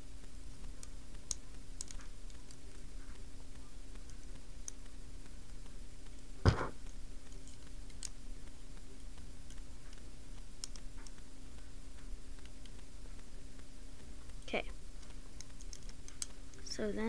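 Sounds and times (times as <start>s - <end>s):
knock: 6.4s - 6.8s.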